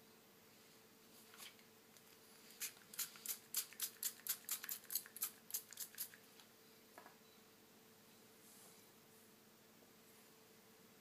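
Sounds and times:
spray bottle hissing puffs: 0:02.6 - 0:06.1.

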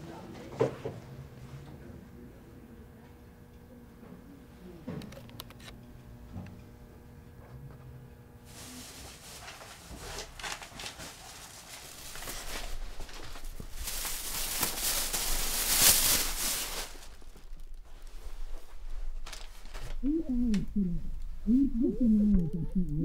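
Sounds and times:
rustling and handling noise: 0:08.5 - 0:21.4.

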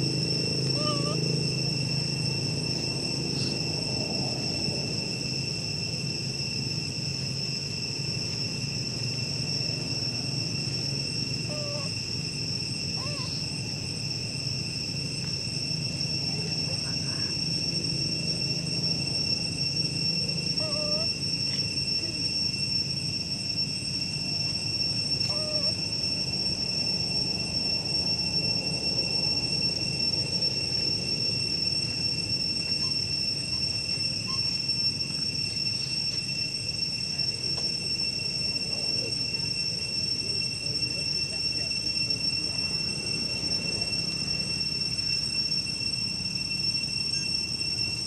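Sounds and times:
insects droning: 0:00.0 - 0:48.0
short insect calls: 0:00.0 - 0:48.0.

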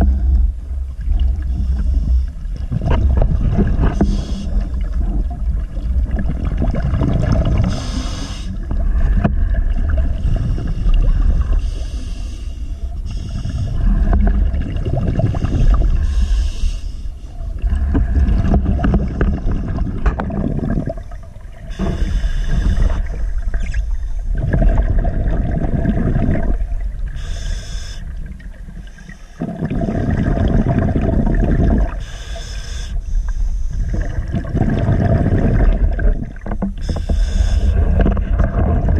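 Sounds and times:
muffled underwater rumble: 0:00.0 - 0:38.9
diver breathing hiss: 0:03.9 - 0:04.8, 0:07.6 - 0:09.1, 0:10.1 - 0:14.2, 0:15.3 - 0:17.4, 0:21.7 - 0:24.2, 0:27.1 - 0:28.2, 0:28.8 - 0:30.0, 0:32.0 - 0:33.9, 0:36.8 - 0:37.9.

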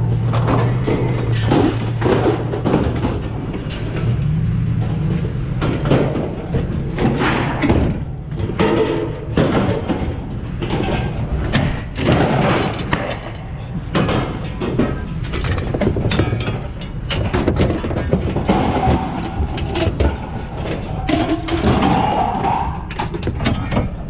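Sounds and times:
metal clanks and thuds: 0:00.0 - 0:24.0.

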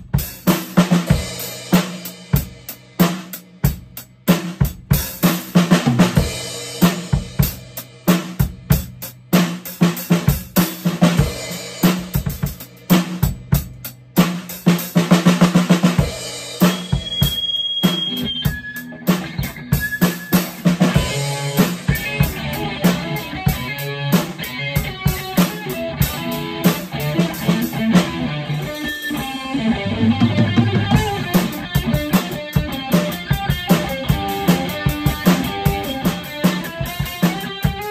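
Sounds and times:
drum kit played with sticks: 0:00.0 - 0:37.9
electric guitar: 0:14.6 - 0:37.9.

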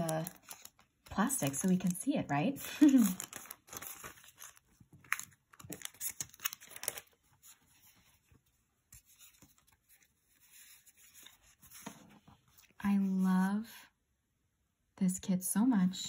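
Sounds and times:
plastic packaging crinkling: 0:00.0 - 0:07.5.

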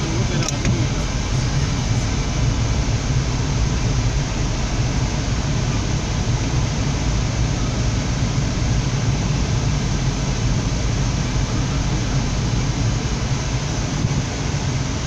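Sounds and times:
engine and road noise in car: 0:00.0 - 0:15.0.

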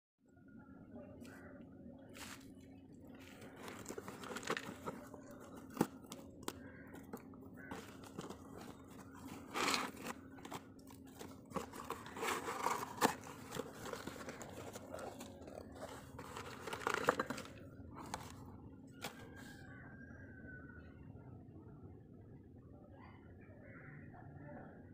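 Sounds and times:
cardboard box crinkling and tearing: 0:03.3 - 0:18.4.

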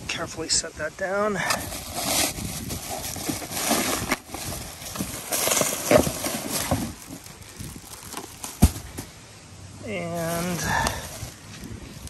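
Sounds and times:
knocks and scrapes: 0:01.5 - 0:07.3, 0:08.1 - 0:09.1
plastic packaging crinkling: 0:01.6 - 0:09.1.

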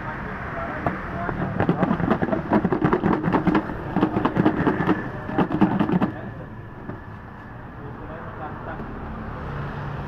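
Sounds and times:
rapid clattering and rattling: 0:01.3 - 0:06.2.

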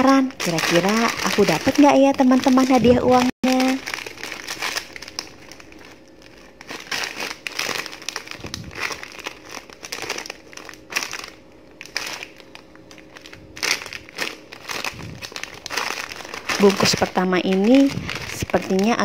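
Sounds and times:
plastic snack packet crinkling: 0:00.0 - 0:19.0.

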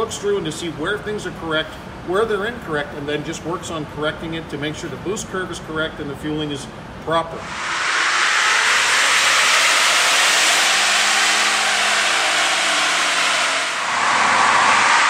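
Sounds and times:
faint engine note: 0:07.4 - 0:15.0
loud steady rushing noise: 0:07.4 - 0:15.0.

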